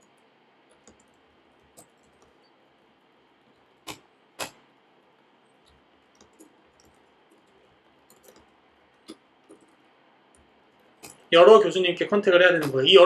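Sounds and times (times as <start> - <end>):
computer keyboard keystrokes: 0.0 - 2.5, 5.6 - 11.3.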